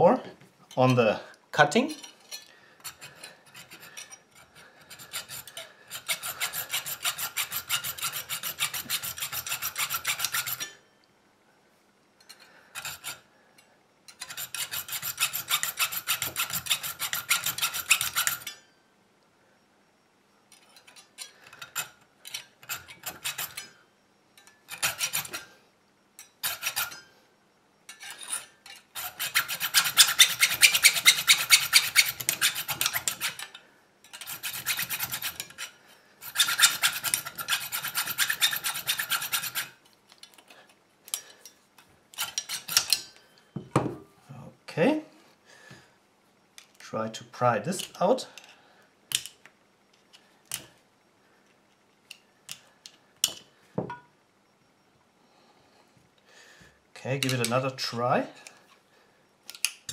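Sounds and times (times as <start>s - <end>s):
hacksaw cutting metal: 2.0s - 10.8s, 12.8s - 13.2s, 14.1s - 18.6s, 20.8s - 23.8s, 24.4s - 25.5s, 26.4s - 27.1s, 27.9s - 39.8s, 42.1s - 43.1s.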